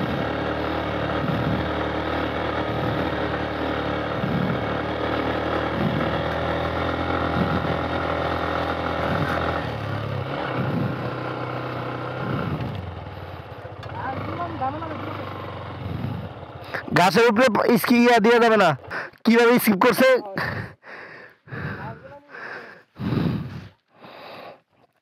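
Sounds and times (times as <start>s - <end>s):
motorcycle engine running: 0.0s - 20.8s.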